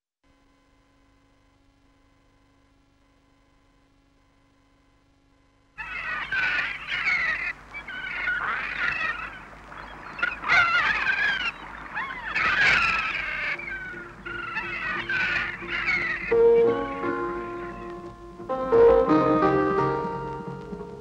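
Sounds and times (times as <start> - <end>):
flock of gulls calling: 5.8 - 18.5.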